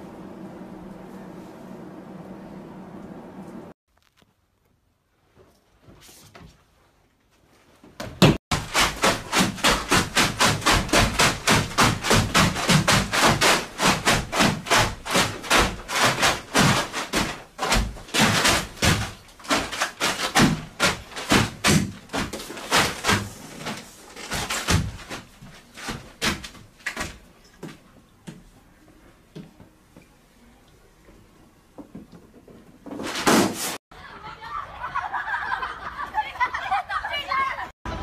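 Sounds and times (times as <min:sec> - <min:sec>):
knocks on a plastic tarp: 0:08.2 - 0:23.3.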